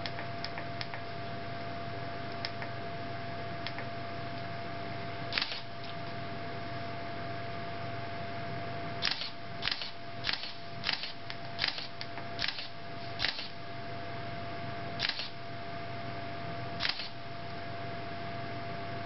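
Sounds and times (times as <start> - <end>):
camera shutter double clicks: 5.4 - 5.7, 9.0 - 13.5, 15.0 - 15.4, 16.8 - 17.2.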